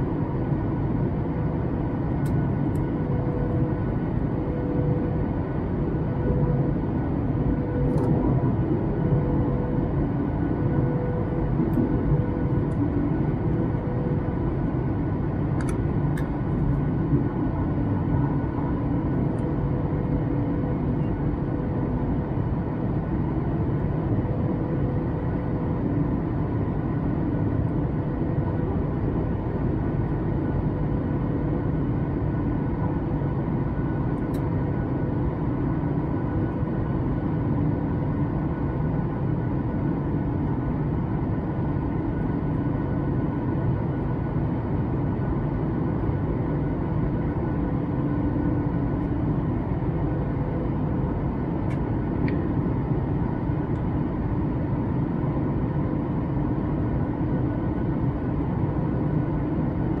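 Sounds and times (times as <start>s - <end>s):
airplane cabin drone: 0.0s - 60.0s.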